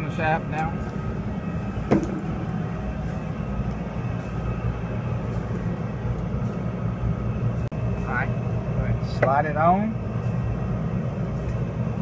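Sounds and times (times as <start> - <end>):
low machinery rumble: 0.0 - 12.0.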